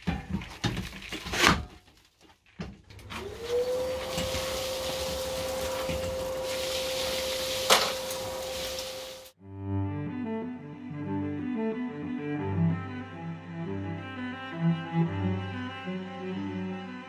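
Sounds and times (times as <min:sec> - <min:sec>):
shop vacuum motor whine: 0:02.9 - 0:09.4
air rushing through hose: 0:03.2 - 0:09.4.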